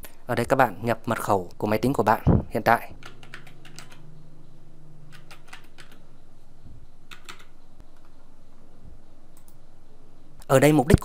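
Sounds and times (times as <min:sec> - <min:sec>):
computer keyboard typing: 0:03.0 - 0:04.0, 0:05.1 - 0:06.0, 0:07.1 - 0:08.1.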